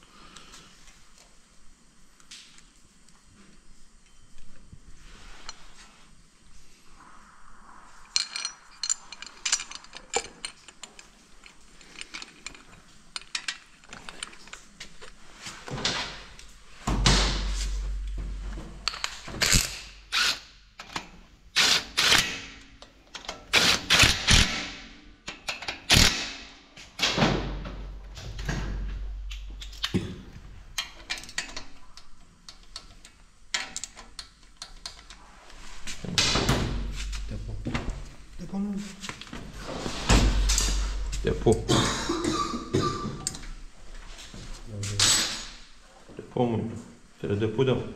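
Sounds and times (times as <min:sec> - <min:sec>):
metal tools clinking and knocking: 0:08.1 - 0:15.1.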